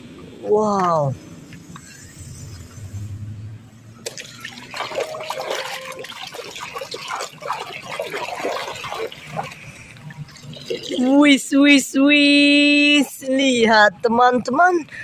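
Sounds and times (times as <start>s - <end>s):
hands splashing in water: 4.0s - 9.8s.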